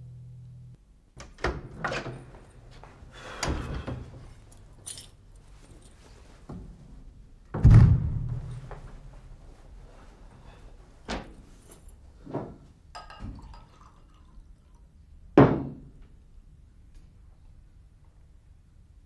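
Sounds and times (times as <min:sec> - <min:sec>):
door pulled shut with thump: 0:07.6 - 0:08.4.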